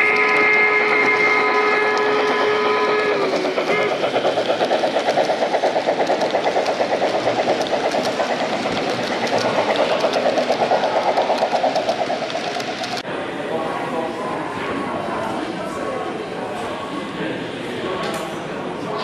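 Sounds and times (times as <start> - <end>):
rhythmic beat of running train: 0.0 - 13.0.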